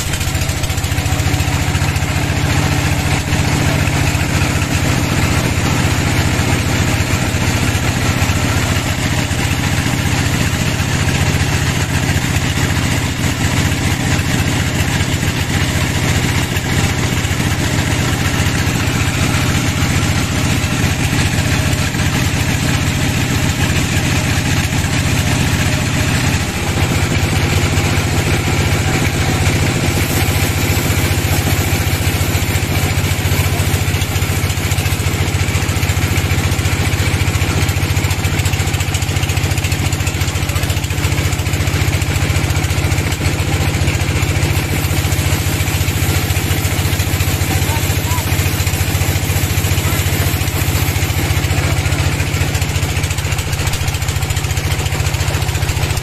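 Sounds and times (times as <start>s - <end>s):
band sawmill drone: 0.0s - 56.0s
saw blade hissing in wood: 25.4s - 37.1s, 44.2s - 53.5s.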